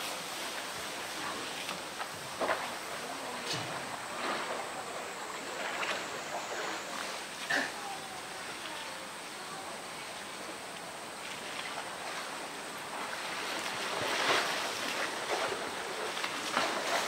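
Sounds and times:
water splashing and sloshing: 0:00.0 - 0:17.0
loud splash: 0:11.5 - 0:17.0.

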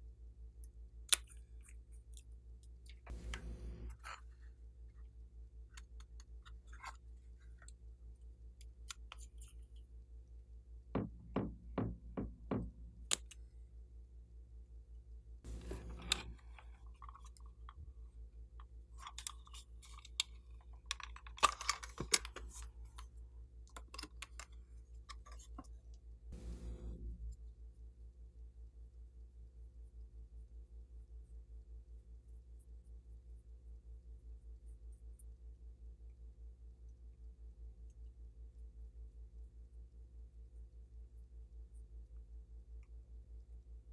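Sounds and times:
steady low hum: 0:00.0 - 0:18.9, 0:25.8 - 0:43.9
plastic palette crackling and clicking: 0:19.0 - 0:23.0.

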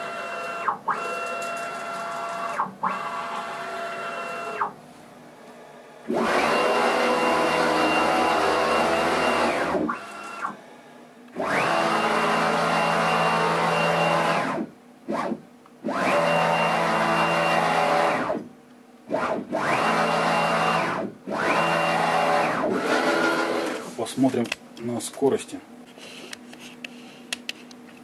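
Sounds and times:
machine axis drives whining: 0:06.0 - 0:10.6, 0:11.3 - 0:24.1.

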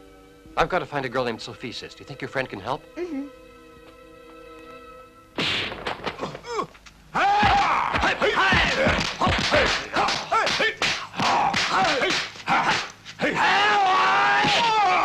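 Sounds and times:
punch and kick impacts: 0:05.4 - 0:06.6, 0:07.2 - 0:12.9, 0:14.3 - 0:15.0
fighters shouting and yelling: 0:06.2 - 0:15.0.

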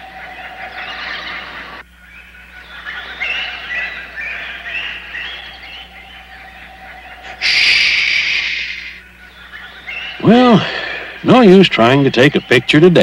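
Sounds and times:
loud hissing burst: 0:07.4 - 0:09.0.

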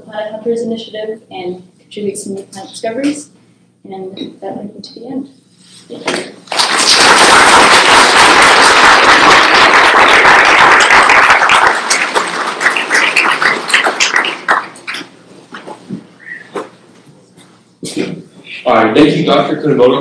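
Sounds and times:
audience applauding: 0:06.4 - 0:15.1.

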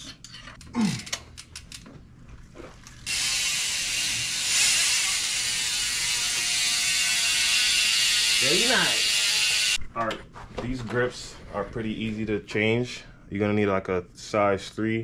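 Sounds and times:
bicycle freehub ratcheting buzz: 0:03.0 - 0:09.8.

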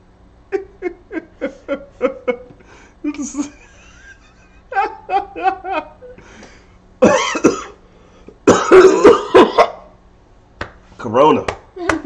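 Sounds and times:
man laughing: 0:00.5 - 0:06.3, 0:08.5 - 0:09.8
man coughing hard: 0:07.0 - 0:07.8, 0:08.4 - 0:09.9.

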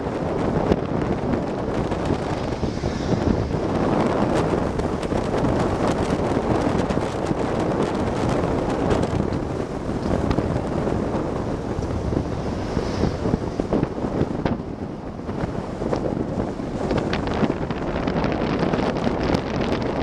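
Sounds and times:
moving car rush: 0:00.0 - 0:20.0
wind buffeting microphone: 0:00.0 - 0:20.0.

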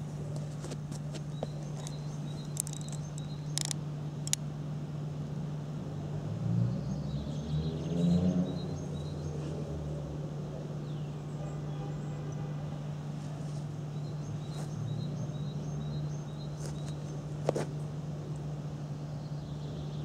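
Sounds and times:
sharp clicks: 0:01.8 - 0:04.4.

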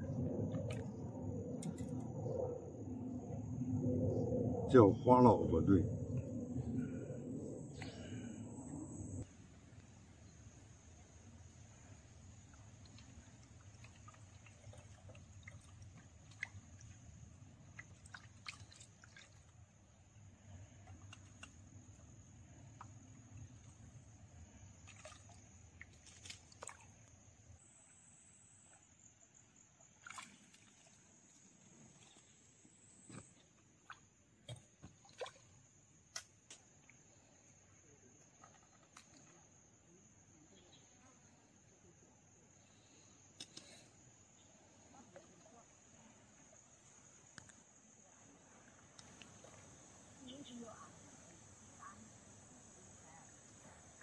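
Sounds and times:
small clicks of tackle: 0:38.4 - 0:39.4, 0:43.4 - 0:43.8, 0:48.8 - 0:49.4.

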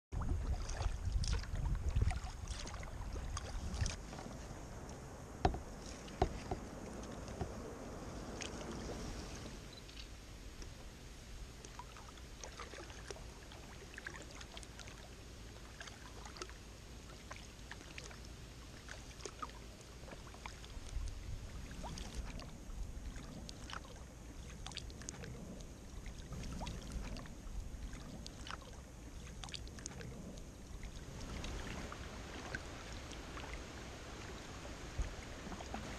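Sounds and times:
low rumble: 0:00.1 - 0:11.3, 0:20.8 - 0:35.9
water drips and splashes: 0:00.2 - 0:10.9, 0:11.5 - 0:35.9
soft hiss: 0:00.5 - 0:35.9.

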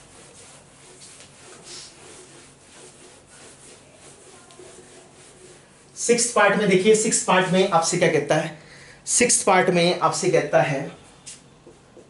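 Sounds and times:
whiteboard being wiped by hand: 0:00.0 - 0:08.2.

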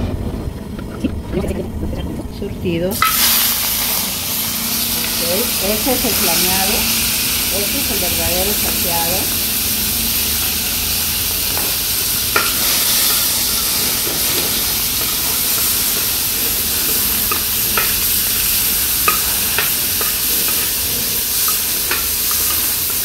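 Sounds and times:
seafood sizzling in hot oil: 0:02.9 - 0:23.0
metal spoon clinking on pan: 0:19.0 - 0:23.0.

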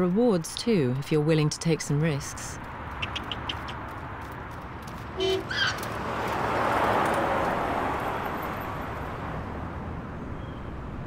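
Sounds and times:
car driving past: 0:04.9 - 0:09.8.

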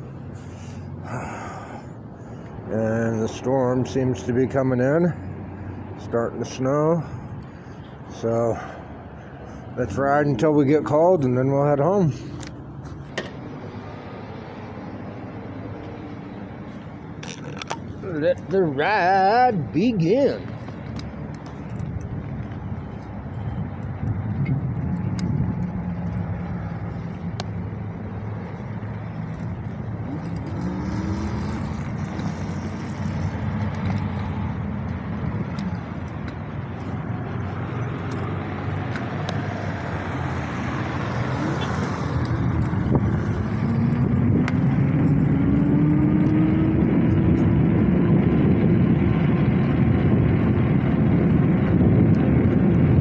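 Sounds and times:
wind rushing over microphone: 0:17.8 - 0:53.0.

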